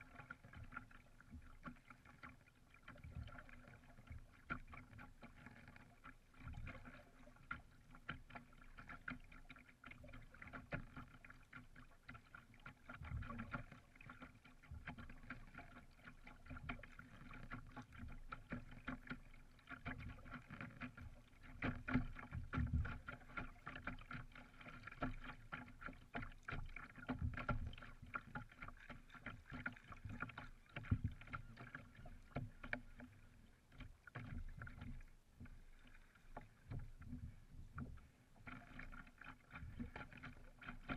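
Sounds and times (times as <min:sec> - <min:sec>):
small waves lapping against canoe: 0:00.0 - 0:40.9.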